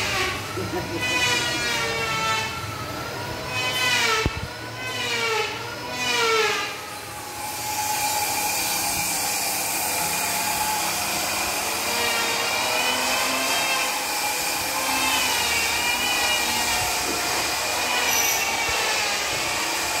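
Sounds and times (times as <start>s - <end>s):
steady machinery noise: 0.0s - 20.0s.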